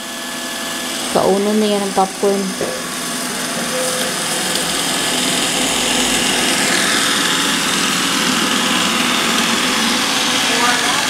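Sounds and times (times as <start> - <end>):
robot vacuum whirring: 0.0 - 11.0.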